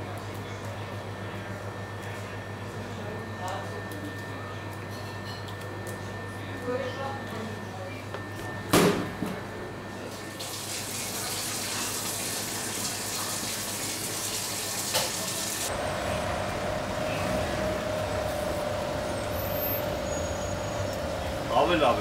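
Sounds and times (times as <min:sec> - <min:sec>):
running water: 0:10.3 - 0:15.7
steady hum: 0:15.6 - 0:22.0.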